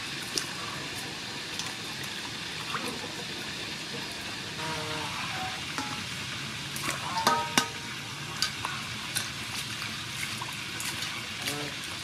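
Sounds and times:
water splashing in bowl: 6.7 - 12.0.

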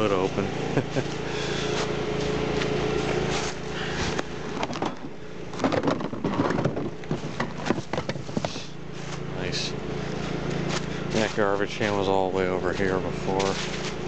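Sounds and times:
steady low hum: 0.0 - 14.0
plastic hood knocking and rattling: 4.6 - 8.5.

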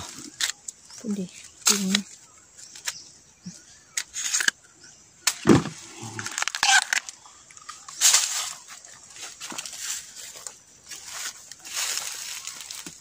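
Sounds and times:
dry stalks crackling: 0.0 - 4.6, 5.2 - 13.0
dull thump: 5.4 - 5.8.

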